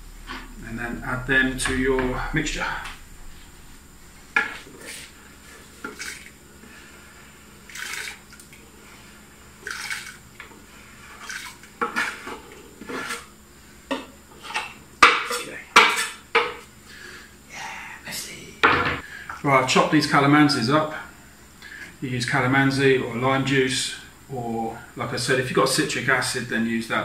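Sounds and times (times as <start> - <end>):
kitchen utensils and dishes clattering: 11.2 - 13.3, 13.9 - 16.6.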